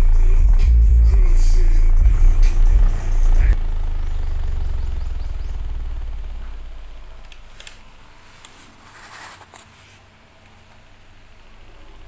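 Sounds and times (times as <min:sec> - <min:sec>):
subwoofer deep bass tone: 0:00.0 - 0:07.4.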